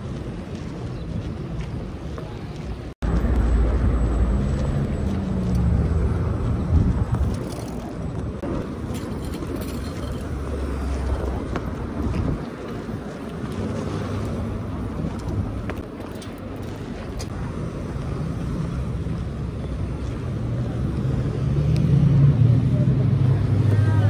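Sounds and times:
cars passing: 0:02.8 - 0:24.0.

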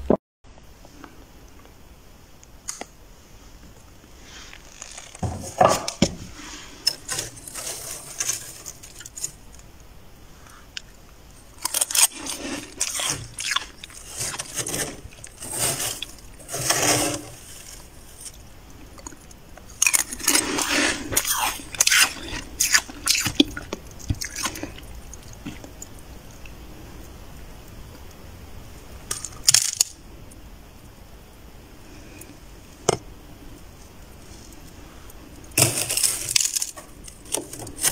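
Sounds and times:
crunchy chewing of frost: 0:06.3 - 0:09.8, 0:10.4 - 0:26.5.

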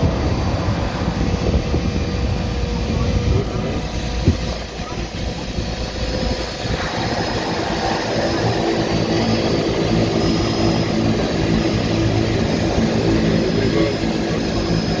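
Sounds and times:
turboprop engine droning: 0:00.0 - 0:15.0.

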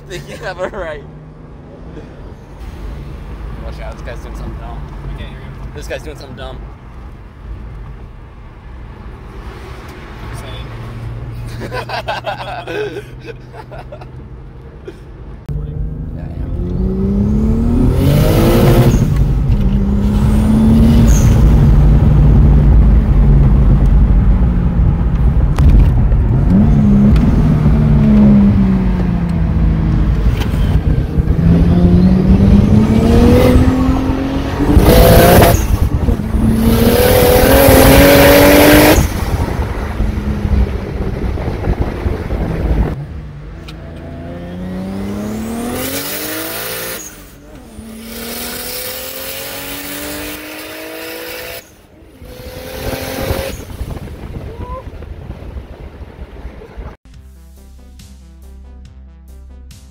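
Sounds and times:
car engine accelerating: 0:15.4 - 0:54.5.

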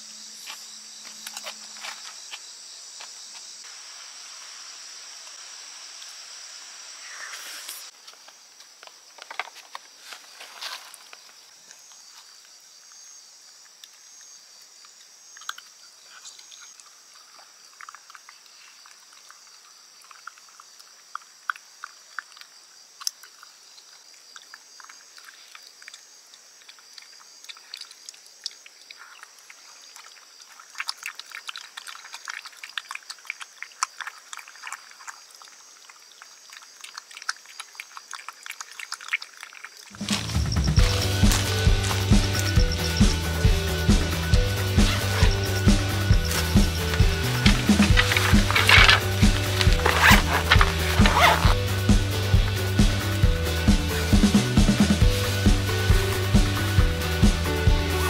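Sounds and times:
high-pitched background hiss: 0:00.0 - 0:17.7
dog chewing and licking: 0:26.6 - 0:40.1, 0:46.1 - 0:51.6.

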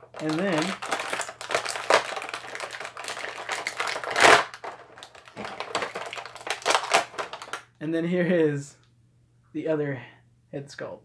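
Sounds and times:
packaging scraping or rustling: 0:00.0 - 0:07.6
plastic parts clicking and rattling: 0:00.0 - 0:07.6.

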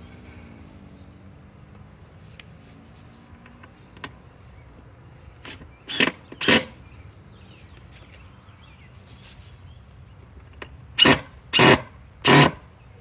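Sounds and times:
cordless drill driving a screw: 0:05.5 - 0:06.7, 0:11.0 - 0:12.6.

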